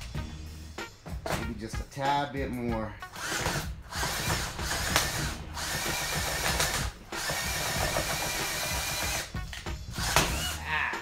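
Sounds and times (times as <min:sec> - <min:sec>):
power drill cutting plastic: 0:03.1 - 0:09.3, 0:09.9 - 0:10.6.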